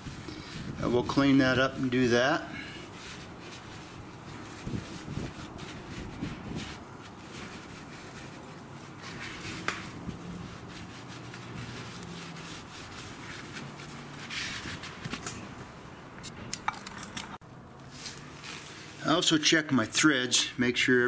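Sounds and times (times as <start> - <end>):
cloth rag rubbing: 0.0 - 15.8, 17.8 - 19.4.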